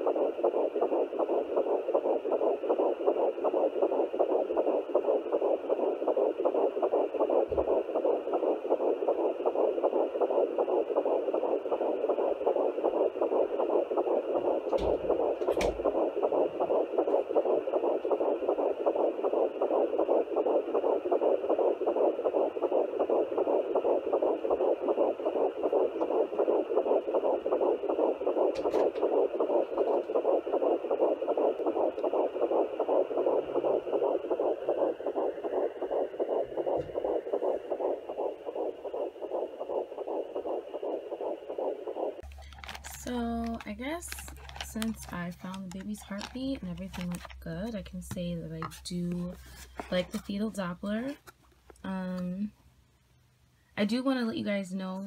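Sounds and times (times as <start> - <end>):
probe knocks: 0.0 - 51.3
fetal heartbeat through doppler speaker: 0.0 - 52.6, 53.8 - 55.0.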